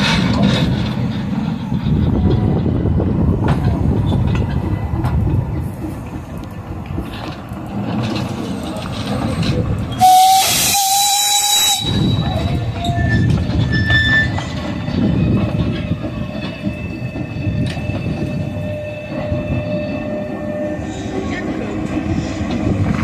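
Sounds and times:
steam locomotive running: 0.0s - 23.0s
wheels squealing on track: 7.9s - 22.3s
steam whistle blast: 10.0s - 12.3s.

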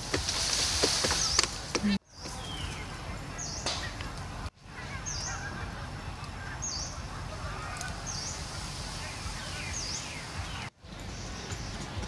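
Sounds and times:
background hiss: 7.8s - 11.5s.

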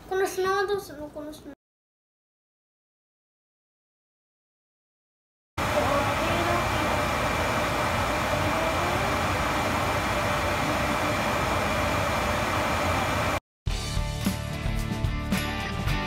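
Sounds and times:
water boiling in a pot: 5.6s - 13.4s.

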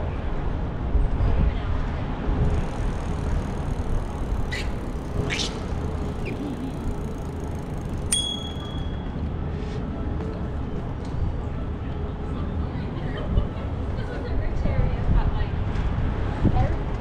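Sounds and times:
bike tyres rumbling on pavement: 2.2s - 9.1s
short high rasps: 2.7s - 7.0s
bicycle bell ding: 8.0s - 9.2s.

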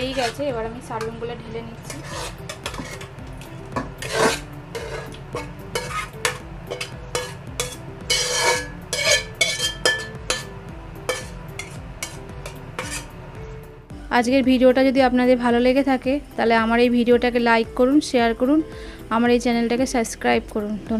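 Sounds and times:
light background music: 0.0s - 20.9s
spoon scraping and clinking on bowl: 1.8s - 3.2s, 3.8s - 13.1s.

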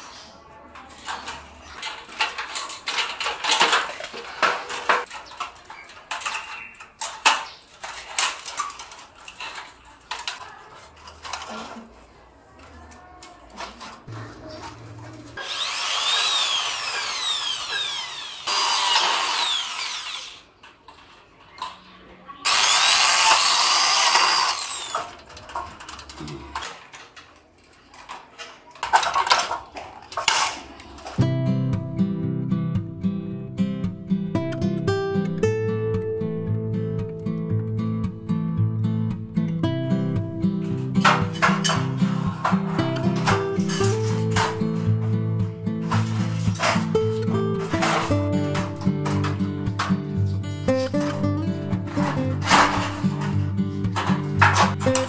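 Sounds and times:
steel strips clicking and knocking: 0.8s - 12.0s, 22.5s - 31.3s, 40.6s - 55.0s
cordless drill whining: 15.4s - 20.5s, 22.5s - 25.2s.

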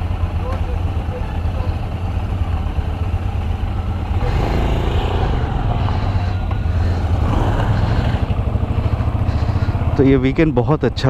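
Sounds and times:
motorcycle engine thumping: 5.4s - 10.2s.

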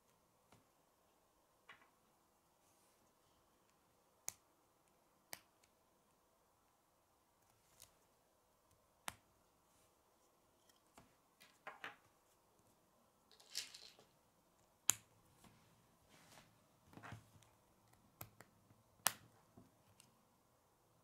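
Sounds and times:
rustle of plastic parts: 13.3s - 14.1s.

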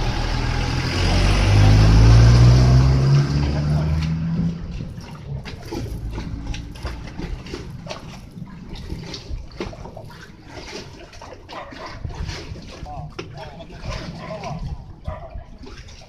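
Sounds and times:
engine: 0.0s - 16.0s
water lapping against boat hulls: 0.0s - 16.0s
wind rumble on microphone: 11.6s - 16.0s.

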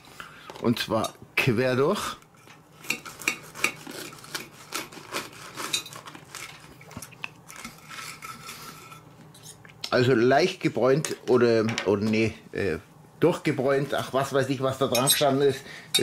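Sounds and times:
knife and fork scraping a plate: 2.4s - 9.6s.

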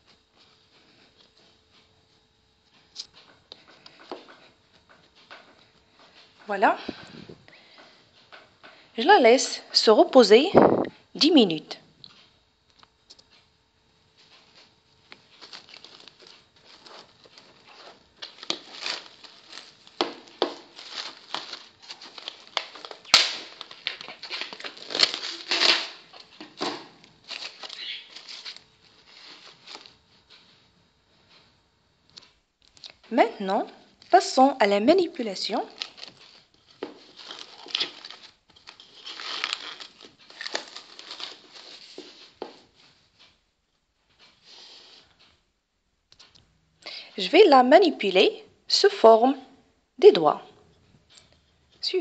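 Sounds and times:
cling film crackling: 15.0s - 30.0s
plastic film snap: 18.2s - 28.6s, 35.7s - 41.7s.

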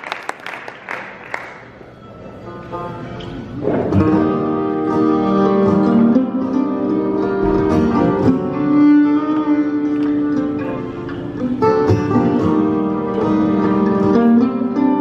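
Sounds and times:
acoustic guitar: 1.5s - 15.0s
mandolin: 1.9s - 15.0s
banjo: 2.7s - 15.0s
fiddle: 4.1s - 15.0s.

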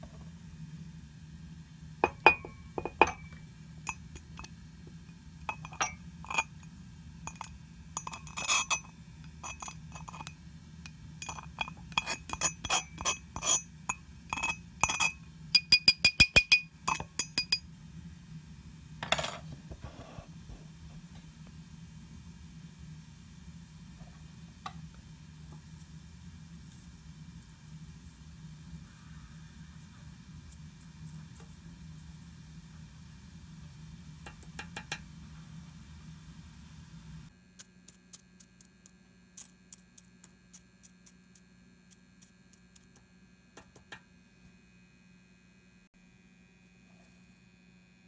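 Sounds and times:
glassware clinking: 2.0s - 4.4s, 5.5s - 6.6s, 7.3s - 10.3s, 11.2s - 13.6s, 14.3s - 17.6s.

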